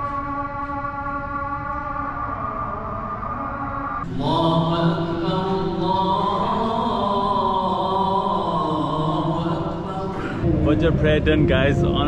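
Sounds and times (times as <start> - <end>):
man chanting melodic prayer: 4.2 - 12.0.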